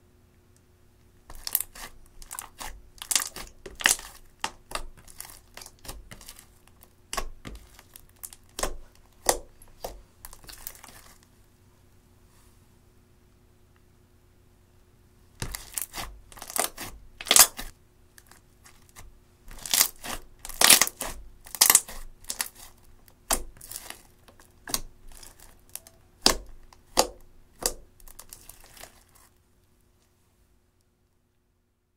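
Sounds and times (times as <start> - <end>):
slime crackling and popping: 1.3 - 11.2, 15.4 - 29.3.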